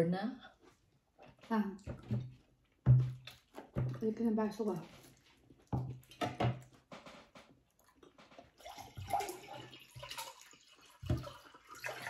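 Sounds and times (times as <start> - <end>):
water pouring into a glass: 8.5 - 12.0.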